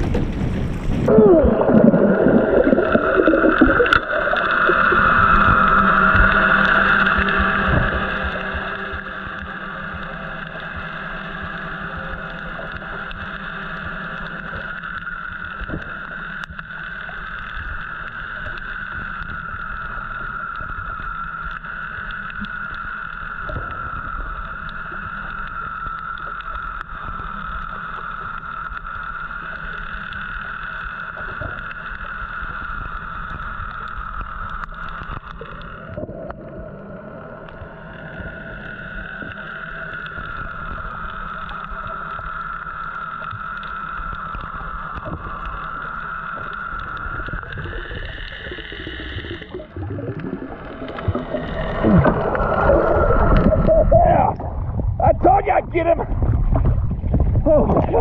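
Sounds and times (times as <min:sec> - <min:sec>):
boat engine heard underwater: 0:00.0 - 0:58.0.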